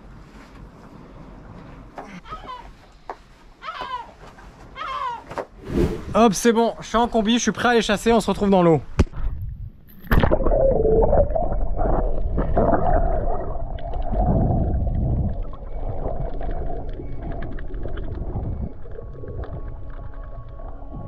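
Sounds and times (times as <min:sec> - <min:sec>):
underwater water rushing and bubbling: 0:09.2 - 0:21.0.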